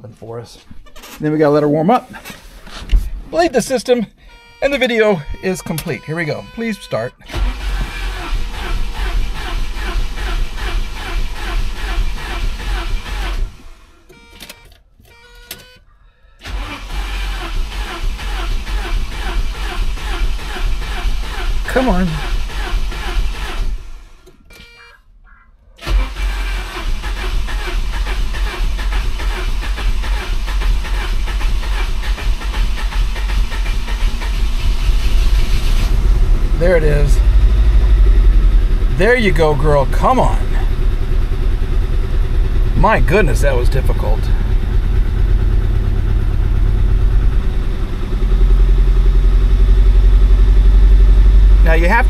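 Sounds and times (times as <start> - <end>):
engine starter cranking: 4.3 - 15.7, 16.4 - 24.8, 25.8 - 38.0
car engine running: 25.8 - 52.0.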